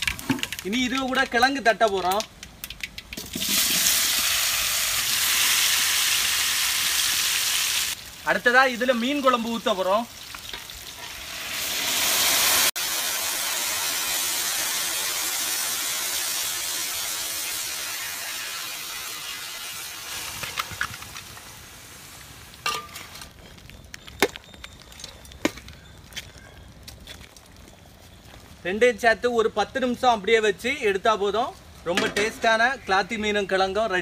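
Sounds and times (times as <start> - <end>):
loud sizzle in a pan: 3.2 - 20.5.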